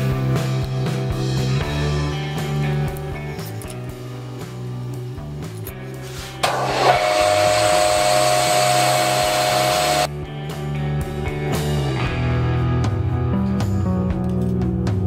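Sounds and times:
guitar music: 0.0s - 15.0s
band saw cutting metal: 6.3s - 10.1s.

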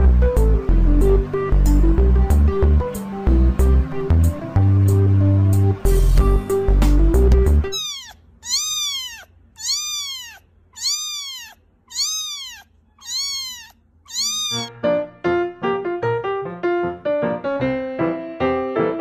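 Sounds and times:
background music: 0.0s - 7.7s
kitten mewing: 7.7s - 14.7s.

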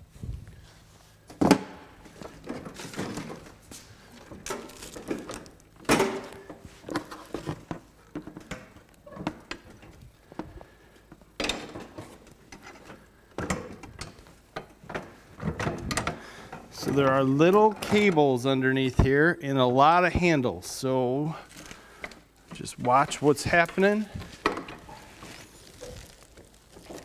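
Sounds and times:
plastic rustling: 2.1s - 8.1s, 21.3s - 27.0s.

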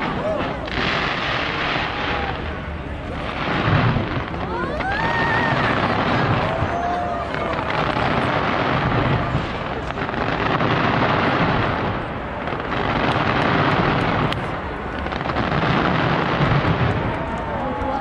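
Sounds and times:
fireworks barrage: 0.0s - 18.0s
sharp firework cracks: 0.0s - 18.0s.

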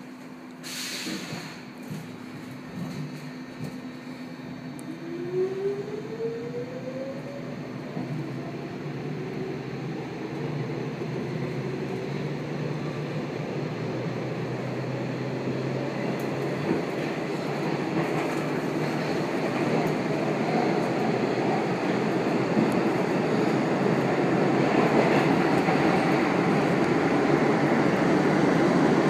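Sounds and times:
subway motor whine: 0.0s - 29.0s
train wheels rolling: 15.8s - 29.0s.

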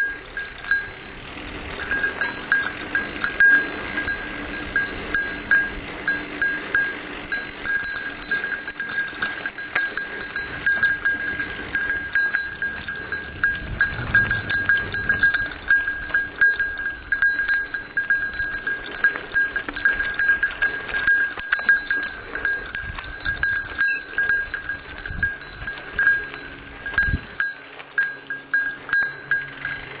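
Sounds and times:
small bell jingling: 1.8s - 30.0s.

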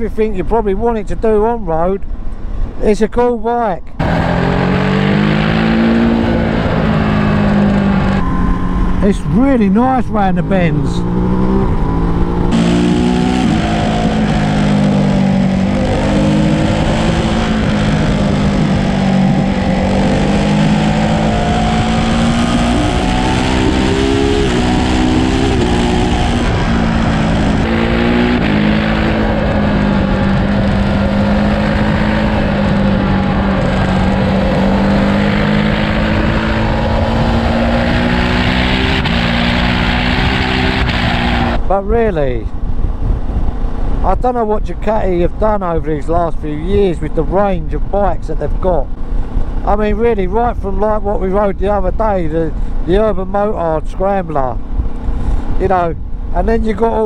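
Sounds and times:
wind and tyre noise: 0.0s - 57.0s
motorcycle engine under way: 4.0s - 41.7s.

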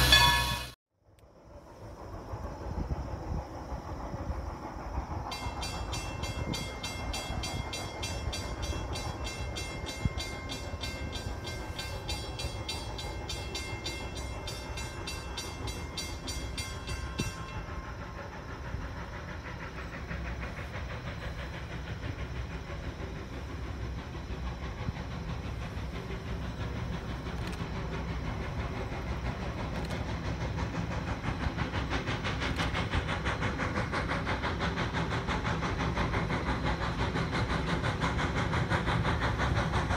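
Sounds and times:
fast ringing crossing bell: 0.0s - 0.8s, 5.3s - 17.8s
steam locomotive chuffing: 0.0s - 0.8s, 1.4s - 39.9s.

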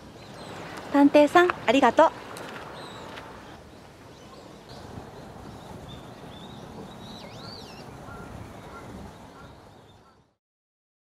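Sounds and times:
steady background hiss: 0.0s - 10.3s
small birds chirping: 0.0s - 10.4s.

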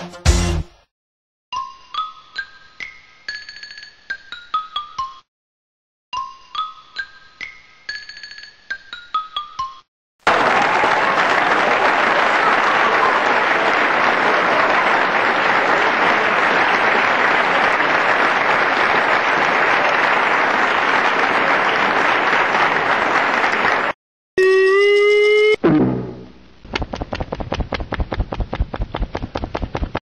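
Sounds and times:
applause: 10.2s - 24.0s.

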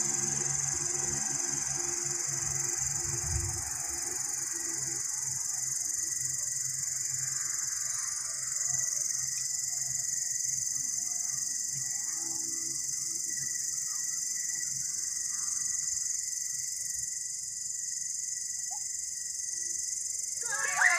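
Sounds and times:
faint steady whine: 0.0s - 20.9s.

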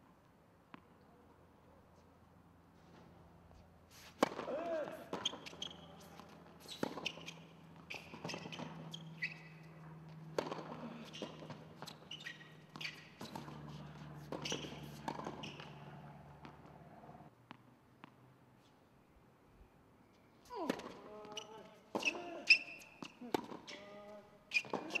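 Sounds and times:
tennis ball off racket strings: 4.0s - 9.2s, 10.2s - 18.2s
ball bouncing on hard court: 4.2s - 9.5s, 10.3s - 16.8s, 24.5s - 25.0s
steady low hum: 5.8s - 17.3s.

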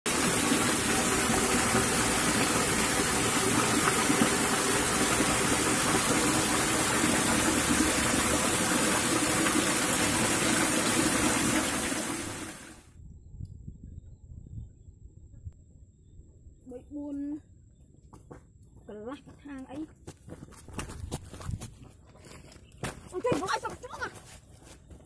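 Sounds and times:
water pouring into a pool: 0.0s - 12.9s.

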